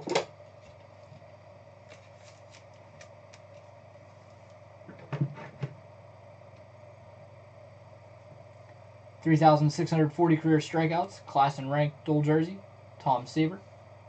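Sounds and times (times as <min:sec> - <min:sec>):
cards ticking and rustling: 0:01.8 - 0:03.7.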